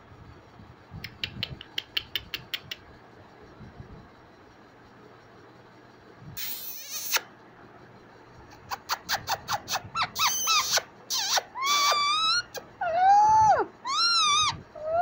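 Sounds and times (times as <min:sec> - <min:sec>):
parakeet screeching: 0:06.4 - 0:07.2, 0:08.8 - 0:15.0
parakeet squeaky chirps: 0:08.7 - 0:15.0.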